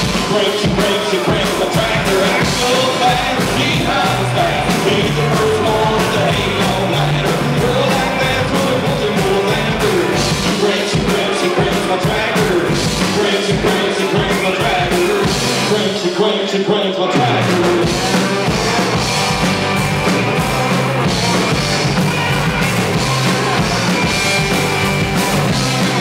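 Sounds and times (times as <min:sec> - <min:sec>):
live country-rock band: 0:00.0 - 0:26.0.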